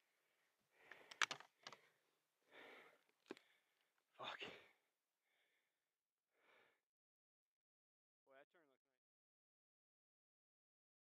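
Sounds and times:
soft breaths: 0:00.0 - 0:05.7
faint clicks: 0:00.8 - 0:02.0.

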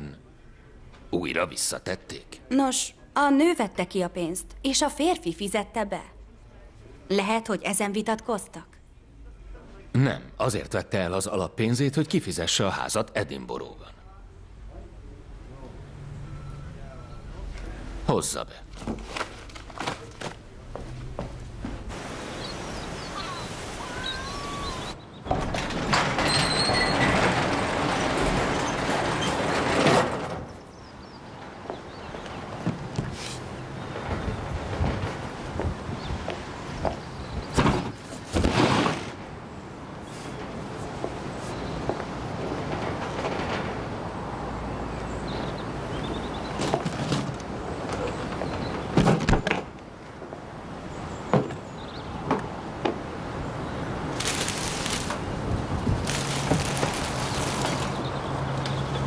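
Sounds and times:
garage door rattling open: 0:25.2 - 0:30.8, 0:54.1 - 0:58.4
rustling scrape: 0:56.0 - 0:58.0.

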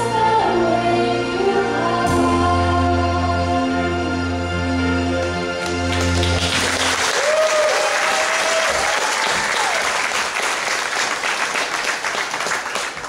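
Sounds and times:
audience applauding: 0:05.2 - 0:13.0
audience cheering: 0:05.6 - 0:13.0.

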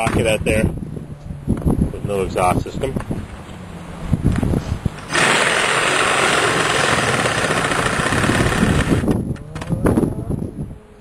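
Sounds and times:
power saw cutting: 0:05.0 - 0:09.1.

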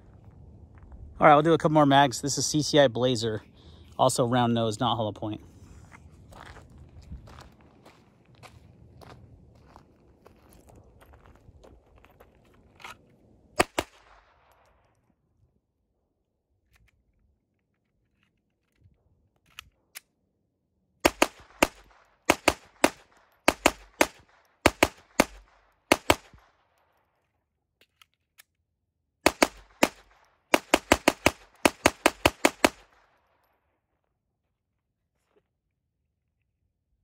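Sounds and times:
pistol shots: 0:13.6 - 0:14.6, 0:21.0 - 0:26.6, 0:29.2 - 0:33.1.

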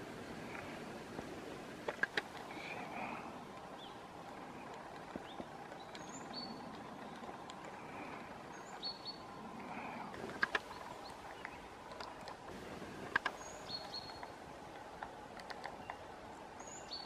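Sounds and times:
outdoor background noise: 0:00.0 - 0:17.0
songbirds chirping: 0:00.0 - 0:17.0
woodpecker tapping on bark: 0:00.5 - 0:16.7.

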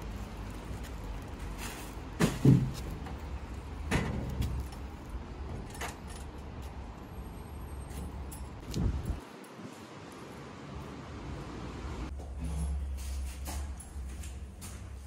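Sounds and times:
steady low rumble: 0:08.4 - 0:09.4.

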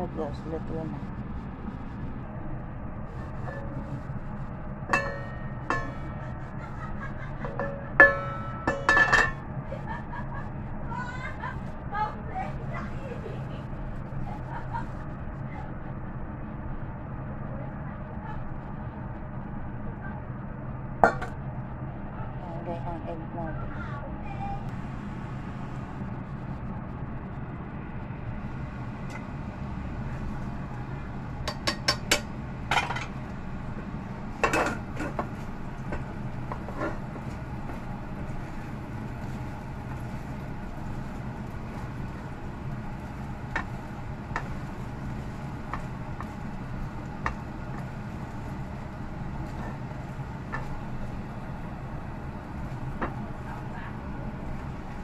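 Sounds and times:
steady low hum: 0:00.0 - 0:55.0
spatula working eggs in pan: 0:33.7 - 0:55.0.

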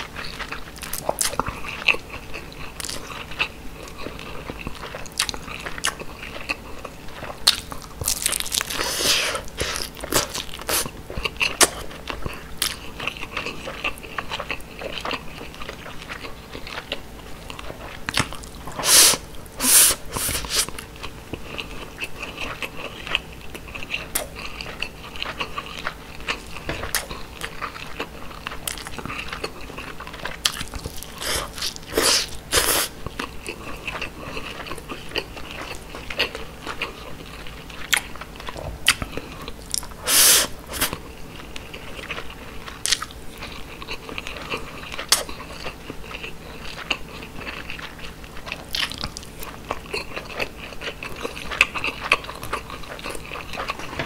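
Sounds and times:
crunchy bites: 0:00.0 - 0:19.4
wet chewing and smacking: 0:00.0 - 0:54.0.

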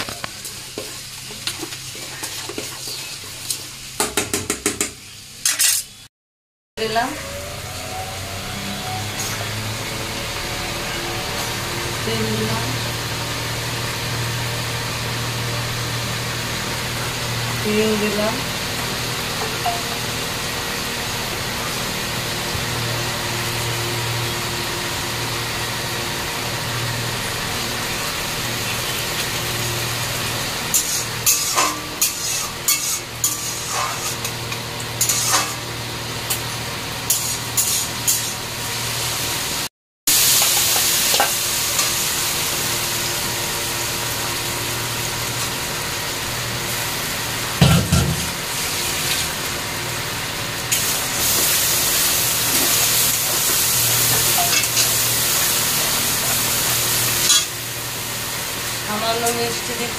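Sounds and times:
hot oil sizzling: 0:00.0 - 0:06.1, 0:06.8 - 0:59.9
spatula scraping metal pan: 0:30.7 - 0:34.4, 0:35.0 - 0:35.6, 0:37.1 - 0:38.4.

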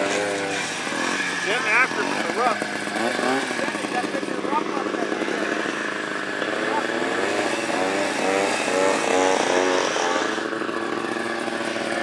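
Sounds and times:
steady engine drone: 0:00.0 - 0:12.0
snowmobile engine racing by: 0:06.7 - 0:12.0.

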